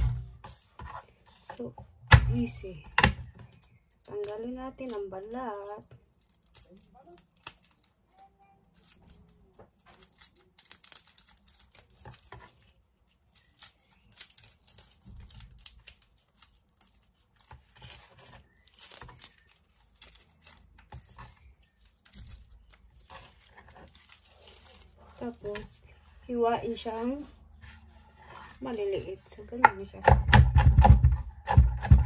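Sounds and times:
garlic skins crinkling and tearing: 3.5s - 27.4s.

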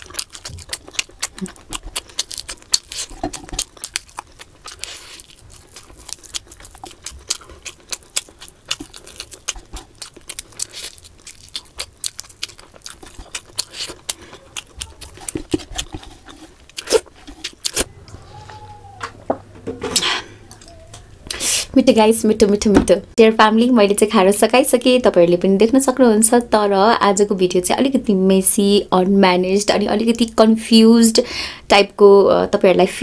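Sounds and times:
wet chewing: 0.0s - 19.0s.

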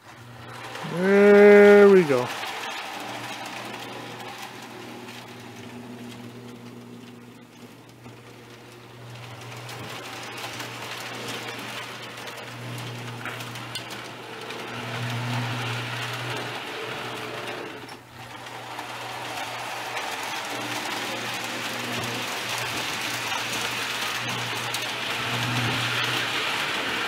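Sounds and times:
electric hum: 0.2s - 2.4s
toy train wheels rattling on tin rails: 0.4s - 5.3s, 9.3s - 27.0s.

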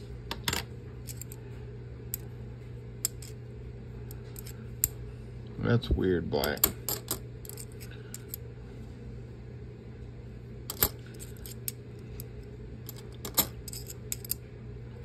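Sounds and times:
steady low hum: 0.0s - 15.0s
coins clinking: 6.4s - 8.4s, 10.7s - 11.7s, 12.8s - 14.4s.

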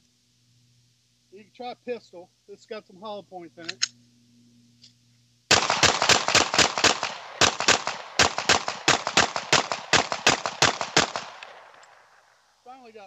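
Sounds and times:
pistol shots in rapid succession: 5.5s - 11.8s.

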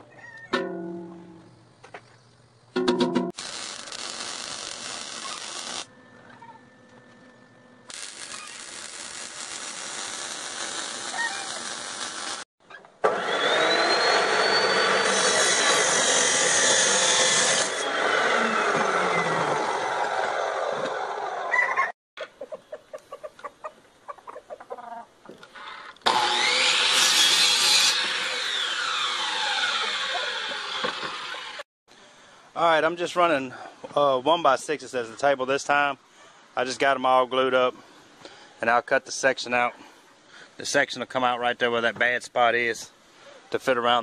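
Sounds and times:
chop saw cutting steel: 3.4s - 5.9s, 7.9s - 12.4s, 13.0s - 21.1s, 26.0s - 31.6s
miter saw cutting wood: 3.4s - 5.9s, 7.9s - 12.4s, 13.0s - 21.4s, 26.0s - 31.6s
welding arc crackling: 3.4s - 5.9s, 7.9s - 12.5s.

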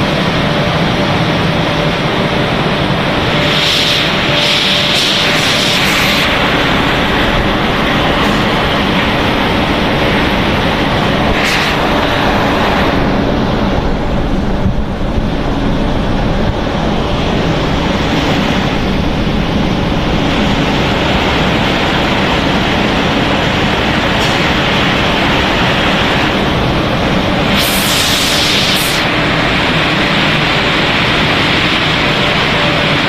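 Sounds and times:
faint hum: 0.0s - 33.0s
machinery rushing noise: 0.0s - 33.0s.

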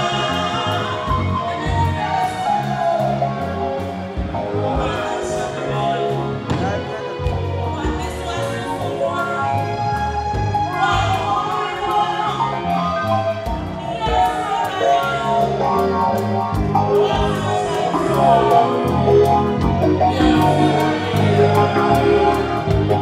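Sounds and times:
person singing: 0.0s - 3.8s, 4.4s - 23.0s
band playing live: 0.0s - 23.0s
drum kit beat: 10.2s - 23.0s.

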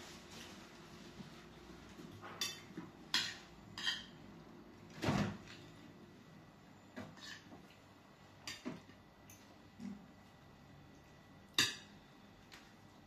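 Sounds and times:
cutlery clinking on a plate: 2.3s - 4.2s, 11.5s - 11.9s.

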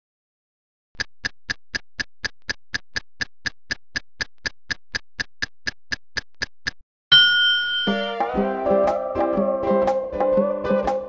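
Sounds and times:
clock ticking: 1.0s - 6.8s.

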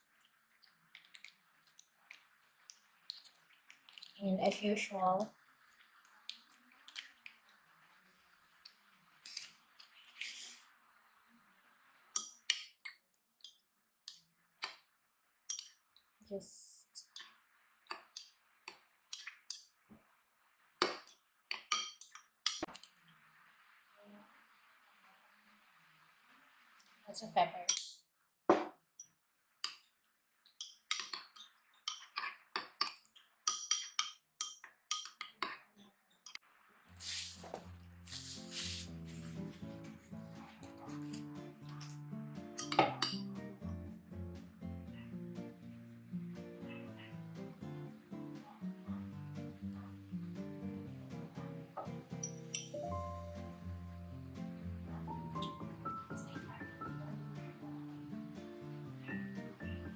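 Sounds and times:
background music: 37.8s - 59.9s
metal utensil clinking on cookware: 42.6s - 43.3s, 52.2s - 52.8s.

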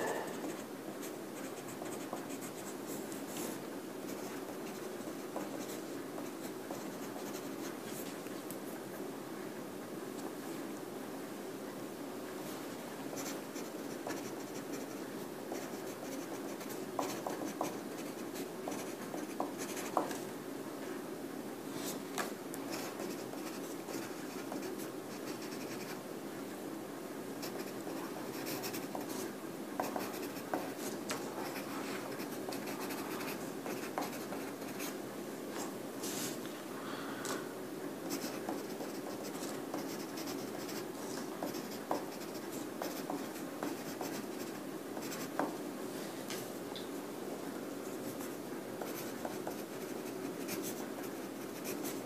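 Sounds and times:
pencil scratching on paper: 0.0s - 2.8s, 4.1s - 7.6s, 13.1s - 20.1s, 22.7s - 25.9s, 27.4s - 35.0s, 38.1s - 40.8s, 41.4s - 45.5s, 48.2s - 52.0s
low room hum: 0.0s - 52.0s.

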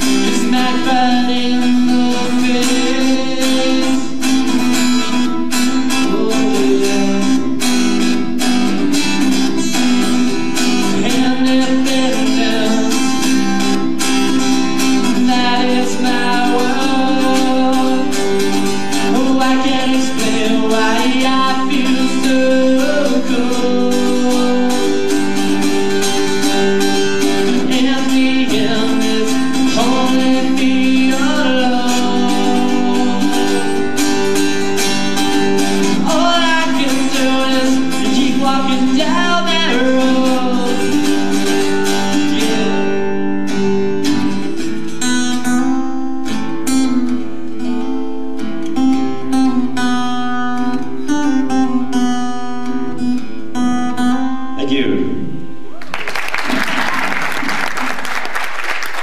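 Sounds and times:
person singing: 0.0s - 43.2s
acoustic guitar music: 0.0s - 59.0s.

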